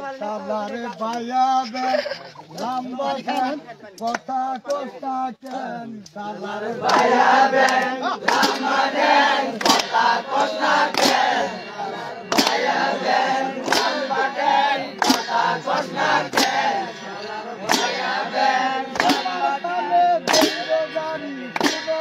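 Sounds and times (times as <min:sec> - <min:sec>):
group singing in unison: 0:00.0 - 0:01.5, 0:02.5 - 0:22.0
metal clang: 0:18.9 - 0:22.0.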